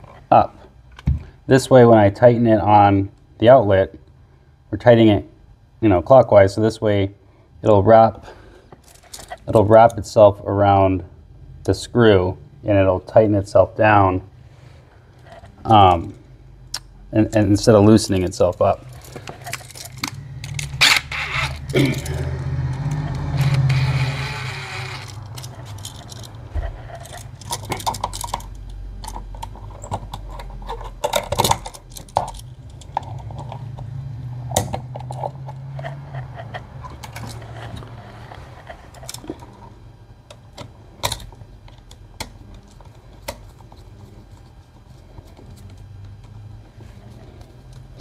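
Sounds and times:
metallic clicks and rattles: 18.4s - 23.7s, 25.0s - 33.7s.

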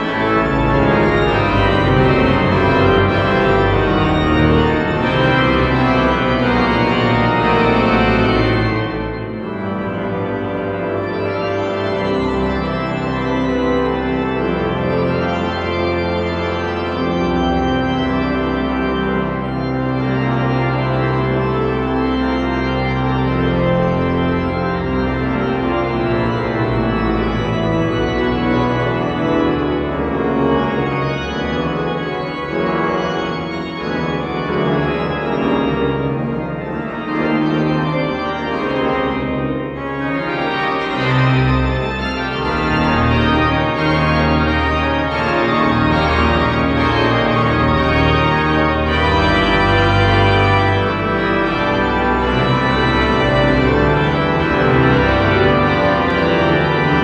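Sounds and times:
deep organ pedal bass notes: 0.0s - 57.0s
pipe organ chords: 0.0s - 57.0s.

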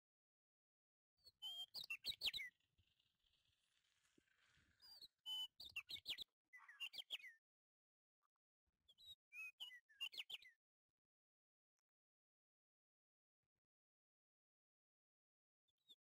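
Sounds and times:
small songbird chirping: 1.2s - 7.4s, 8.9s - 10.6s.

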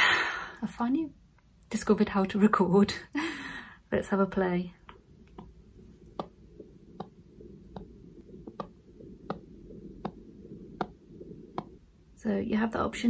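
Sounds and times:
low hiss: 3.7s - 13.0s
heartbeat through phone speaker: 4.9s - 12.2s.

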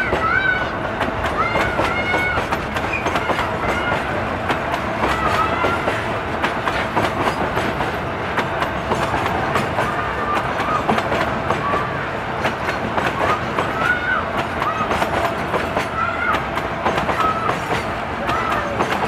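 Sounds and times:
train rumble: 0.0s - 19.0s
train wheels clacking over rail joints: 0.0s - 19.0s.

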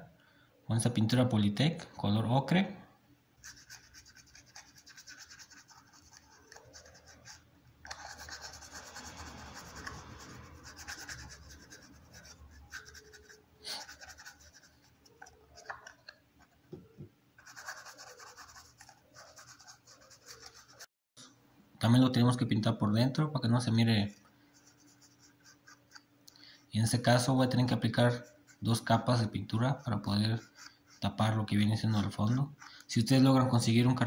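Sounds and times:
paintbrush scratching on cardboard: 3.4s - 16.6s, 17.4s - 20.9s, 24.0s - 26.1s, 26.8s - 33.2s.

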